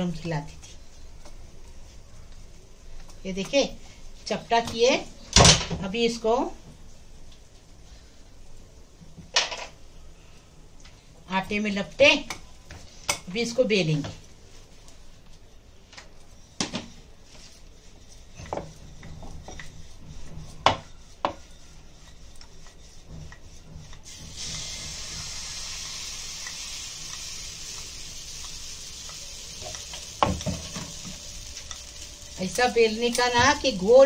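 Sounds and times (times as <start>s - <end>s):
rolling pin rolling dough: 11.6s - 25.2s
steady high hiss: 24.1s - 34.0s.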